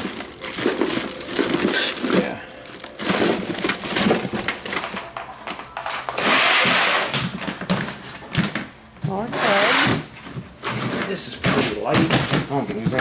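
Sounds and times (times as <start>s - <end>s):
packaging rustling and crinkling: 0.0s - 8.6s.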